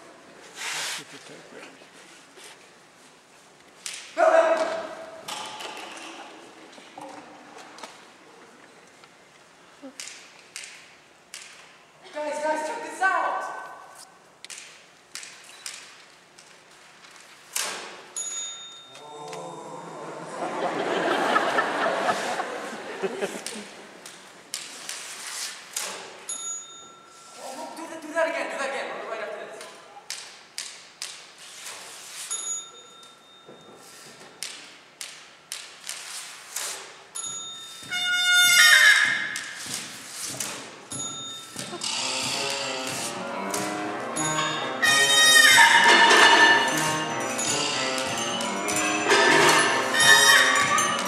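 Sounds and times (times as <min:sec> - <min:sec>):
typewriter bell ding: 0:18.2 - 0:19.0, 0:26.3 - 0:27.4, 0:32.3 - 0:33.9, 0:37.2 - 0:38.1, 0:40.9 - 0:42.6, 0:44.2 - 0:51.0
trumpet held note: 0:42.6 - 0:48.2.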